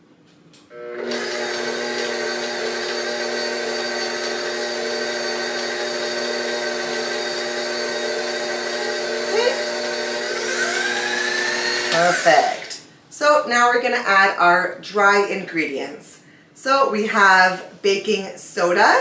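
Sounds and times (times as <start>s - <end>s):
stand mixer motor whining: 0.7s - 12.8s.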